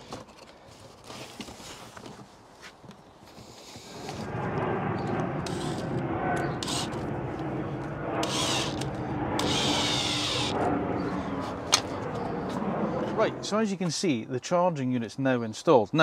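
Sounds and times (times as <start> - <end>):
cordless drill running: 5.4 - 5.9, 6.6 - 7.1, 8.2 - 10.6.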